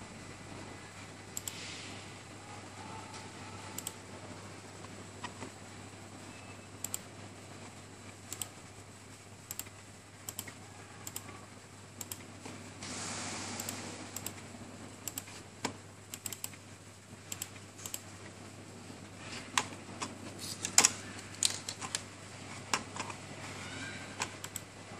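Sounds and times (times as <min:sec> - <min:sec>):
short burst of hiss: 0:12.8 - 0:13.8.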